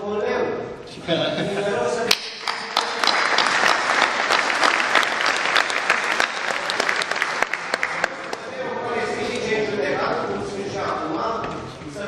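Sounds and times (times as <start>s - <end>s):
audience applauding: 2.1s - 8.5s.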